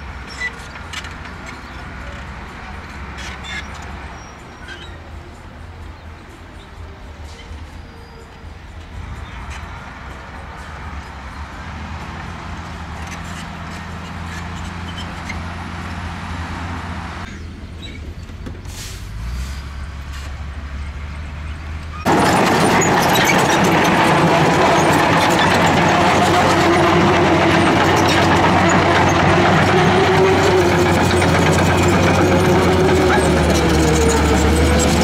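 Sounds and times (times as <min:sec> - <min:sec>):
bulldozer engine and steel tracks: 0:00.0 - 0:35.0
diesel truck engine running: 0:00.0 - 0:35.0
brief hiss: 0:18.7 - 0:20.3.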